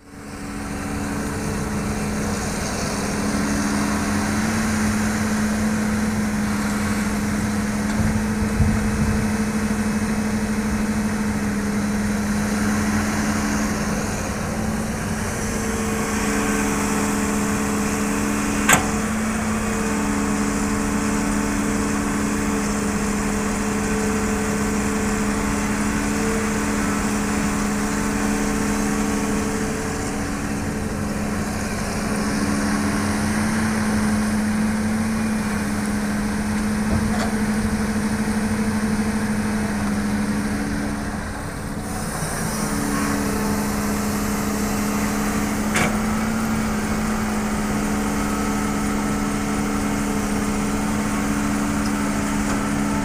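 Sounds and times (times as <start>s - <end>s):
excavator diesel engine humming: 0.0s - 53.0s.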